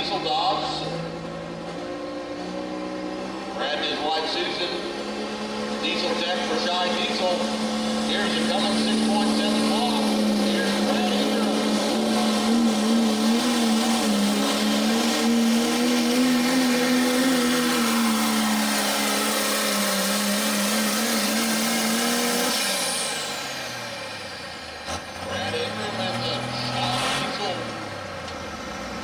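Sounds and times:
diesel truck engine at full throttle: 0.0s - 29.0s
turbo whine winding down: 3.8s - 27.5s.

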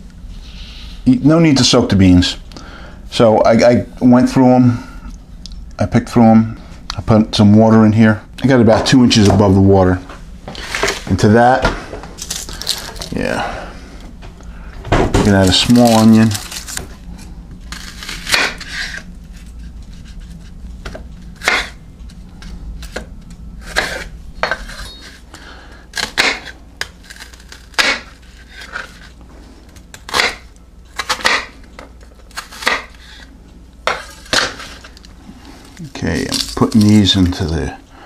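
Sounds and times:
low steady hum: 0.0s - 38.0s
knife chopping on wooden board: 26.0s - 26.5s, 27.7s - 28.1s, 32.4s - 33.0s.

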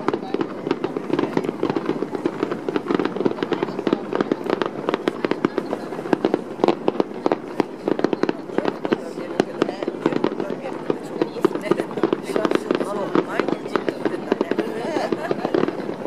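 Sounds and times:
fireworks popping and crackling: 0.0s - 16.0s.

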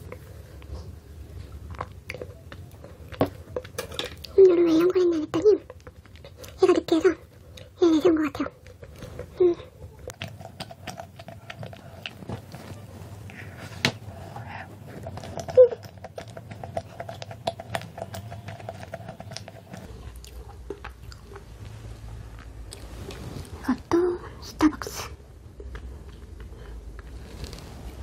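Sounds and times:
wet chewing: 0.0s - 4.4s, 5.3s - 7.8s, 8.5s - 21.7s.

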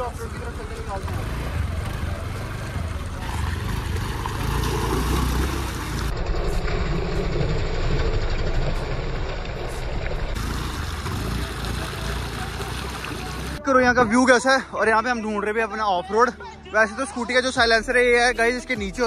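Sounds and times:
scooter engine rumbling: 0.0s - 13.6s.

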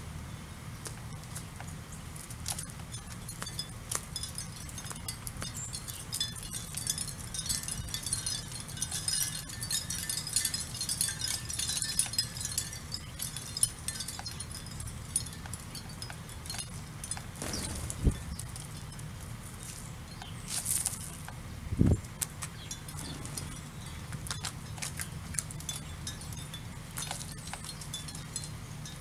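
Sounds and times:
low background rumble: 0.0s - 29.0s
sparrows chirping: 0.0s - 29.0s.

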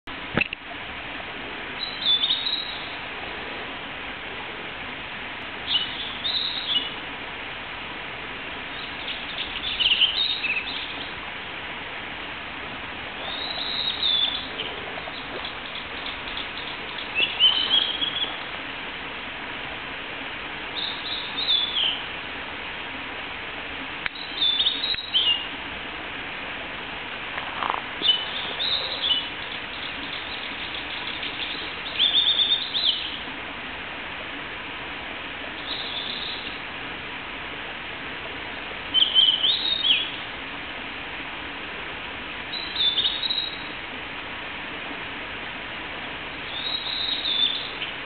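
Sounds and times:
steady background hiss: 0.1s - 48.0s
flycatcher singing: 1.8s - 3.0s, 5.6s - 7.0s, 8.7s - 11.2s, 13.2s - 18.5s, 20.8s - 22.1s, 24.1s - 25.5s, 28.0s - 33.2s, 35.6s - 36.6s, 38.9s - 40.2s, 42.5s - 43.7s, 46.5s - 48.0s.

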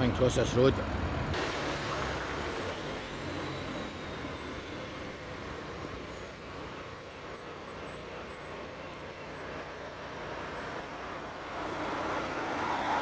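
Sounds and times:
distant traffic hum: 0.0s - 13.0s
vehicle passing: 9.7s - 13.0s.

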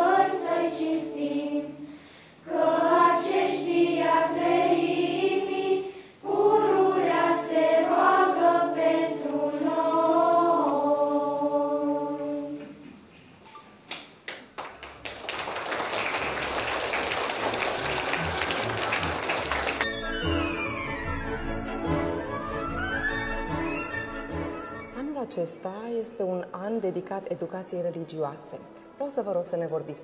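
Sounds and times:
children's choir singing: 0.0s - 12.9s
applause: 13.9s - 20.0s.

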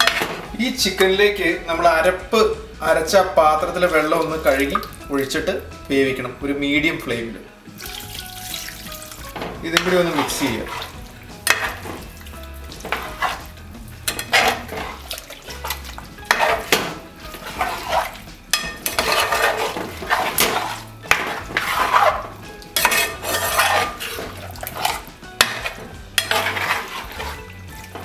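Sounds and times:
spoon scraping a metal pot: 0.0s - 0.5s, 8.7s - 28.0s
spoon stirring thick masala: 0.0s - 1.0s, 7.7s - 28.0s.

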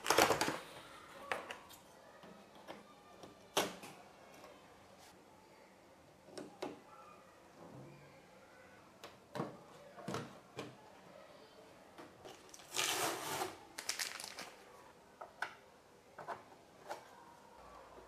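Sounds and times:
plastic packet rustling: 12.3s - 14.6s.

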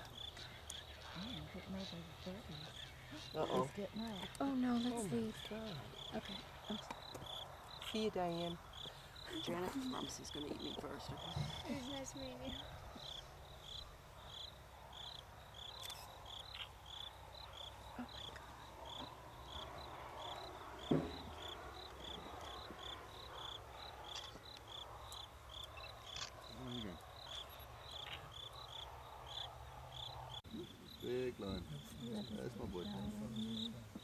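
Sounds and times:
insects chirping: 0.0s - 34.0s
sharp knock: 20.9s - 21.4s.

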